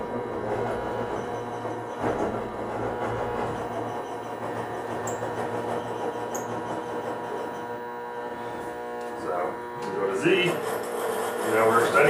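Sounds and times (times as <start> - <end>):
milling machine servo hum: 0.0 - 12.0.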